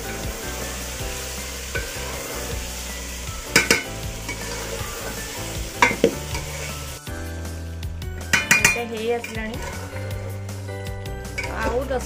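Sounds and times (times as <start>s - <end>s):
chicken sizzling in a pot: 0.0s - 12.0s
spoon knocking against pot: 3.5s - 3.9s, 8.3s - 9.7s
metal spoon stirring and scraping: 3.5s - 7.0s, 8.2s - 12.0s.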